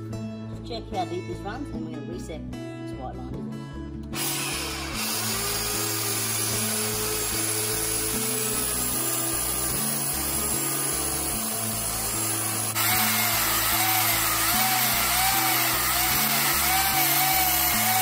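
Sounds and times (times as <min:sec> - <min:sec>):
background music: 0:00.0 - 0:18.0
belt sander grinding hoof: 0:04.2 - 0:18.0.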